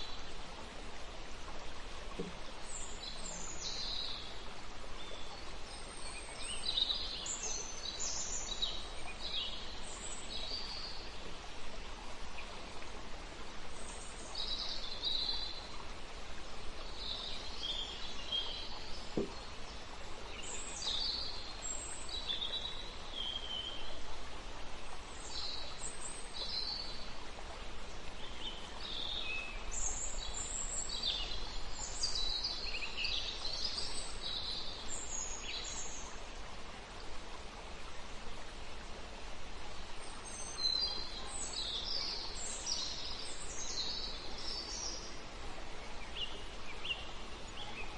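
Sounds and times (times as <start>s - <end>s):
steady background hiss: 0.0s - 47.9s.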